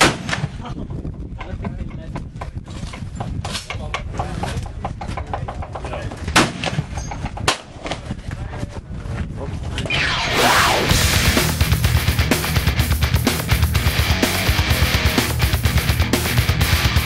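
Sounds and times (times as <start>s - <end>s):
loud gunshots: 0.0s - 0.6s, 6.3s - 6.9s
smaller gunshots: 0.0s - 0.6s.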